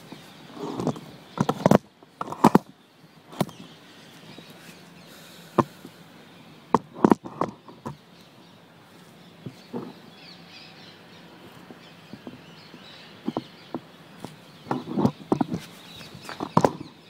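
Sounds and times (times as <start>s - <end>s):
camera handling knocks and rubbing: 0.6s - 2.7s, 6.7s - 8.0s, 9.4s - 10.0s, 12.1s - 16.9s.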